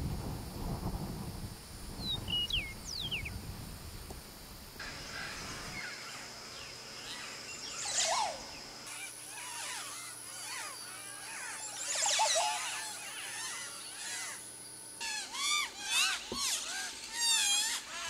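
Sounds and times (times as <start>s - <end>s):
bird whistling song: 2.0s - 3.4s, 6.6s - 8.6s, 10.0s - 14.4s
birds chattering calls: 2.0s - 3.4s, 4.8s - 18.0s.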